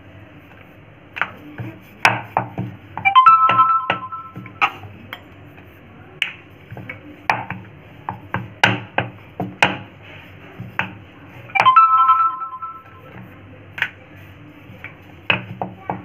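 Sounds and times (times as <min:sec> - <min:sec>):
keyboard chime: 0:03.0 - 0:04.6, 0:11.6 - 0:13.1
rolling pin knocking on board: 0:06.2 - 0:09.9, 0:15.2 - 0:16.0.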